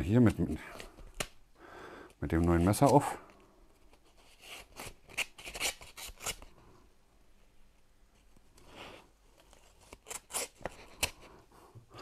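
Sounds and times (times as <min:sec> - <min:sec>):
knife slitting paper envelope: 0:09.4 - 0:11.2.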